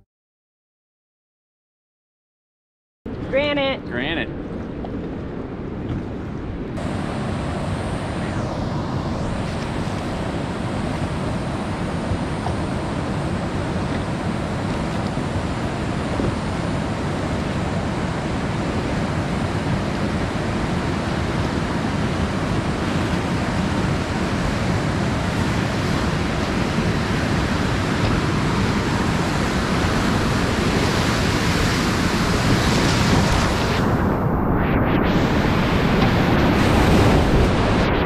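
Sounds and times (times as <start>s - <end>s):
whitewater rushing: 6.8s - 33.8s.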